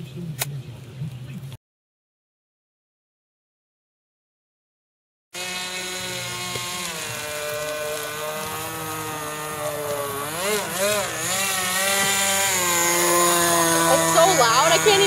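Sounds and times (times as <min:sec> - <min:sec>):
model boat engine buzzing: 0:05.4 - 0:15.0.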